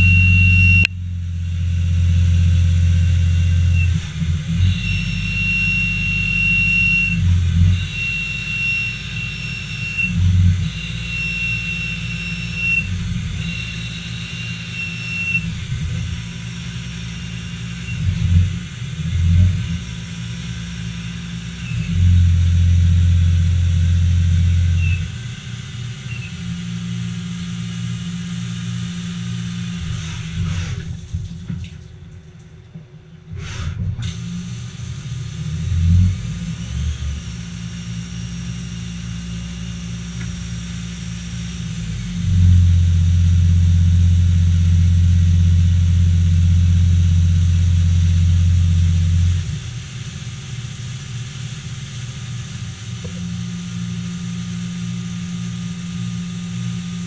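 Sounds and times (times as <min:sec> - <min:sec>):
lathe machine hum: 0:00.0 - 0:31.0.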